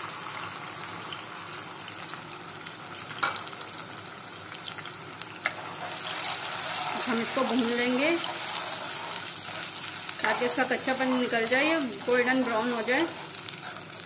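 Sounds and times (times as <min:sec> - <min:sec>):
onion paste sizzling in oil: 0:00.0 - 0:14.0
spoon stirring: 0:05.4 - 0:14.0.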